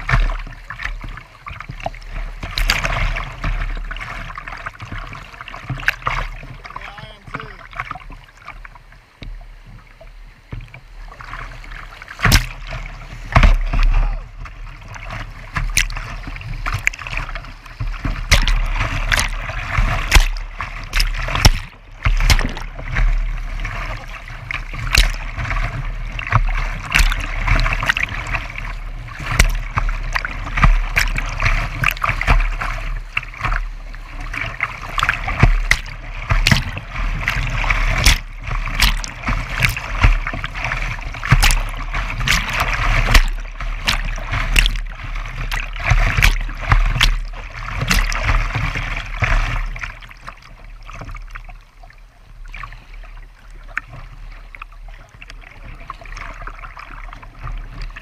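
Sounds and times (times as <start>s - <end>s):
waves splashing over kayak: 0.0s - 58.0s
rapids rushing: 6.4s - 7.8s.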